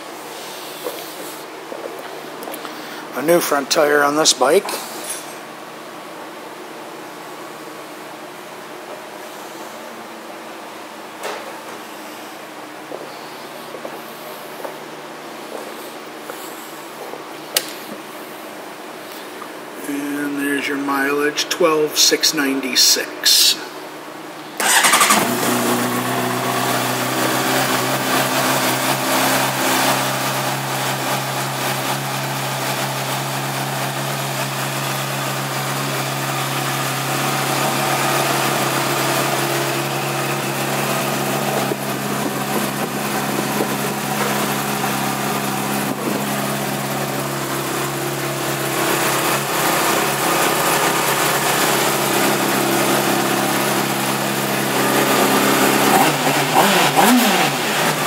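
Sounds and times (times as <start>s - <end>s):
motorcycle engine idling: 24.6s - 29.0s, 30.4s - 56.2s.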